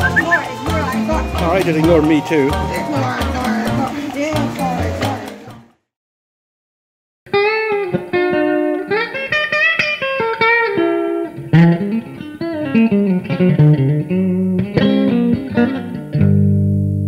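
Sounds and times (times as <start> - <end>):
blues guitar licks: 0.0 - 5.2, 7.3 - 17.0.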